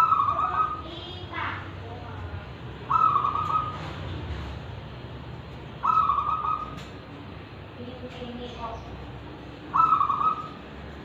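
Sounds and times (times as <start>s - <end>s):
dove cooing: 0.0s - 0.9s, 2.9s - 4.0s, 5.8s - 6.9s, 9.7s - 10.6s.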